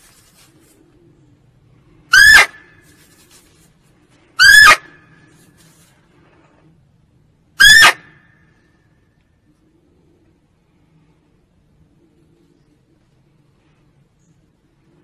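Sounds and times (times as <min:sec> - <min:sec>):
deer barking: 0:02.1 - 0:02.7, 0:04.4 - 0:05.1, 0:07.6 - 0:08.1.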